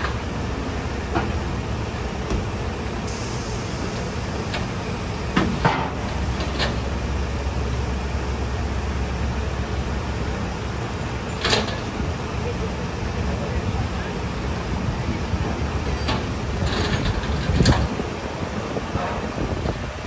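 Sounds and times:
tank engines idling: 0:00.0 - 0:20.0.

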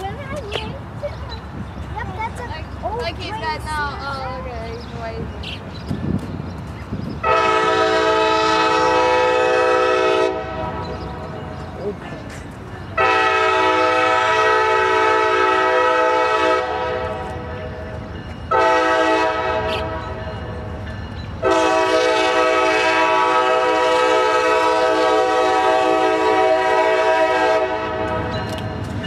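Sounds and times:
low locomotive rumble: 0:00.0 - 0:29.0
locomotive air horn blasts: 0:07.2 - 0:10.8, 0:13.0 - 0:17.3, 0:18.5 - 0:19.9, 0:21.4 - 0:28.3.

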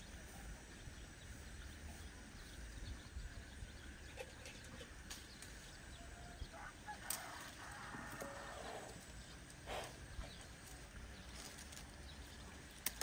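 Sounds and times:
soft clicks from branches: 0:05.0 - 0:05.6, 0:07.0 - 0:08.3, 0:10.6 - 0:12.0, 0:12.7 - 0:13.0
leaves rustling: 0:10.6 - 0:13.0.

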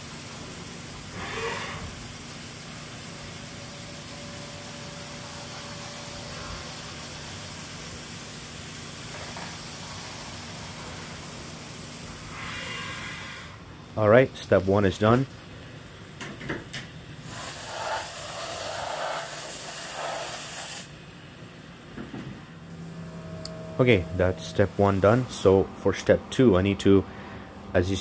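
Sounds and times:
machine humming: 0:00.0 - 0:15.9, 0:21.0 - 0:28.0
coolant spraying and hissing: 0:00.0 - 0:21.6.

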